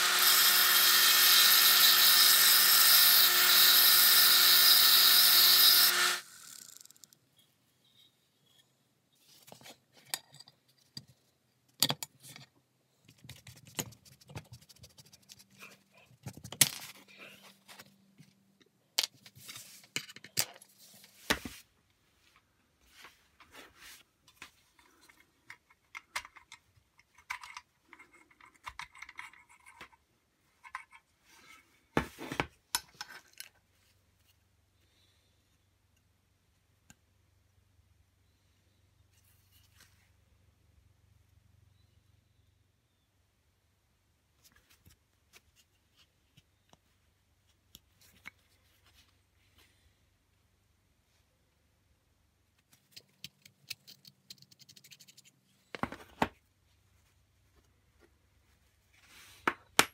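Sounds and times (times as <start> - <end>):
parts set down on wooden board: 55.8 - 56.4.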